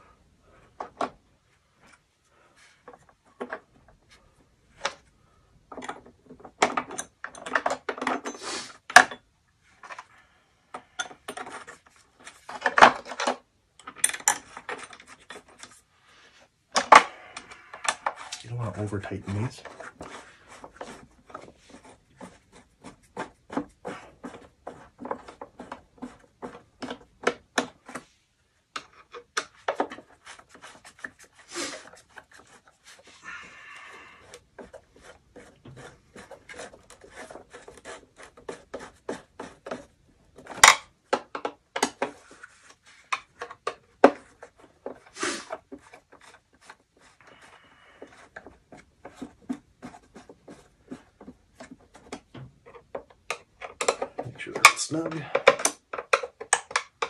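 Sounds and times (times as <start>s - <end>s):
brief scrapes: 45.1s - 45.6s.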